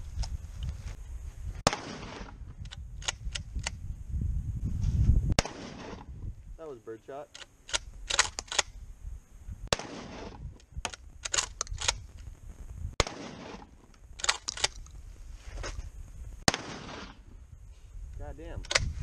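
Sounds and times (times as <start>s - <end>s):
shotgun shots with echo: 1.6s - 2.4s, 5.4s - 6.1s, 9.7s - 10.4s, 13.0s - 13.7s, 16.5s - 17.2s
gun action clicks: 2.6s - 3.8s, 7.3s - 8.8s, 10.8s - 12.0s, 13.9s - 14.9s, 18.6s - 18.9s.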